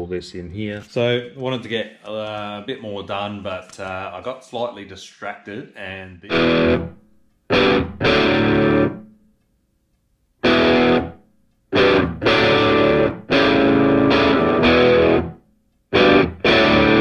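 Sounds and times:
distorted electric guitar chords: 0:06.3 - 0:09.0, 0:10.4 - 0:17.0.

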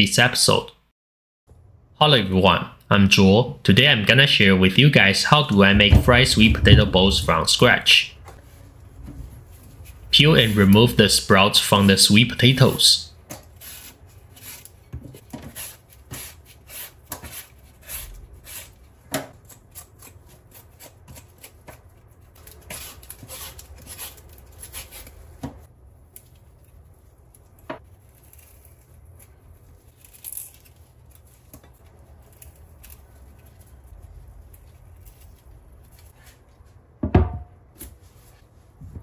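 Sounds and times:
vegetable peeler scraping: 0:13.5 - 0:14.8, 0:15.4 - 0:21.8, 0:22.4 - 0:25.2
knocks on steel sink: 0:37.0 - 0:37.5.

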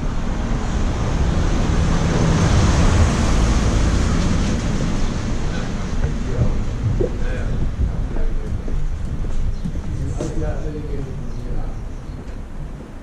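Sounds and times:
vehicle passing: 0:00.0 - 0:11.6.

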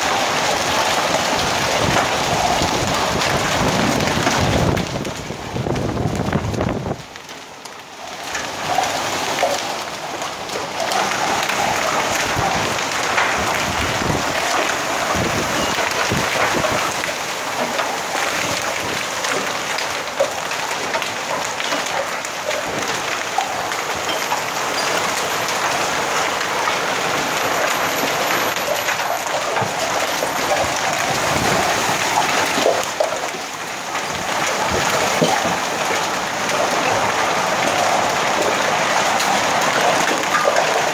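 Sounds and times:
heavy rain pouring: 0:00.0 - 0:40.9.

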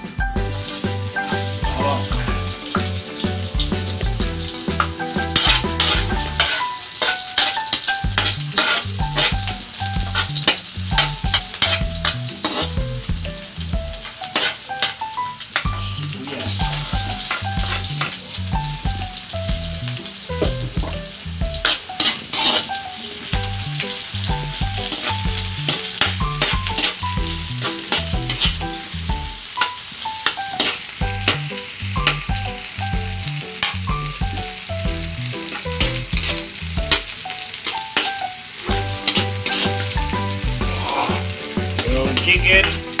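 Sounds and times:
background music with bass line: 0:00.0 - 0:06.5, 0:08.0 - 0:14.0, 0:15.7 - 0:21.7, 0:23.4 - 0:29.4, 0:31.0 - 0:37.1, 0:38.7 - 0:43.0
garlic and onion sizzling in oil: 0:00.0 - 0:43.0
metal spoon scraping wok: 0:04.4 - 0:12.8, 0:14.2 - 0:15.0, 0:21.6 - 0:22.9, 0:37.6 - 0:40.3.

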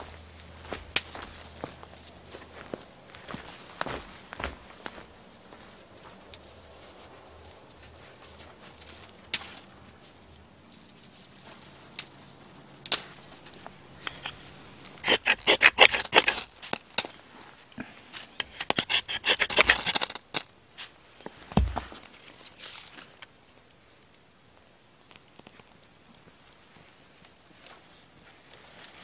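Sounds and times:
dry material scraping and crackling: 0:13.5 - 0:17.6, 0:18.3 - 0:23.2
dull thump: 0:21.5 - 0:22.0.

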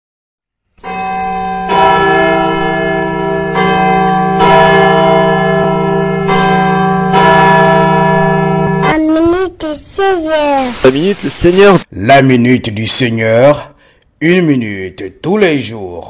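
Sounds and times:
bells ringing: 0:00.8 - 0:09.0.

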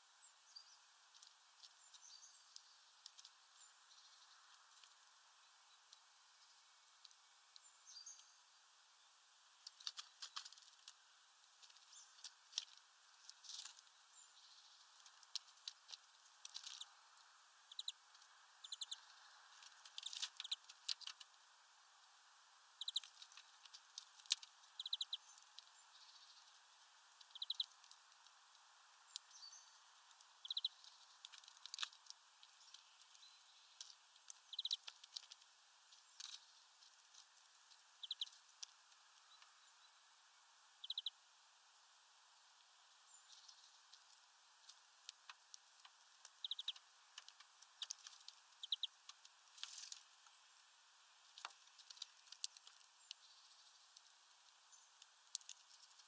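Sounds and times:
faint steady hiss: 0:00.0 - 0:56.0
birds cracking seeds: 0:00.8 - 0:08.4, 0:09.4 - 0:56.0.

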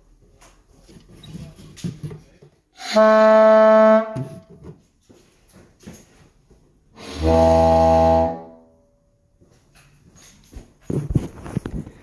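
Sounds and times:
organ pipe held note: 0:07.0 - 0:08.8.

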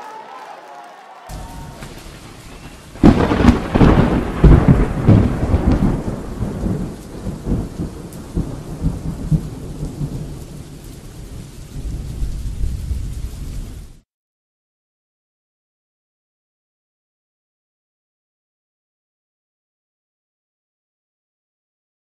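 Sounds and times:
rain hissing: 0:01.2 - 0:14.0
thunder rumbling: 0:01.3 - 0:14.0.

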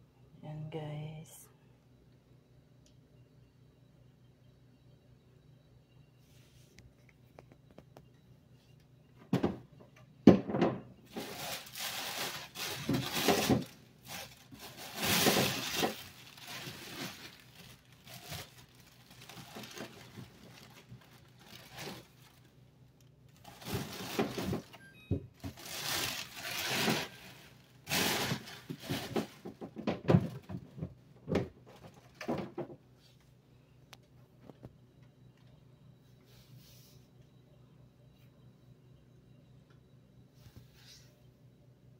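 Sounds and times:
handling rustling and scraping: 0:11.1 - 0:22.5, 0:23.3 - 0:24.8, 0:25.4 - 0:31.0.

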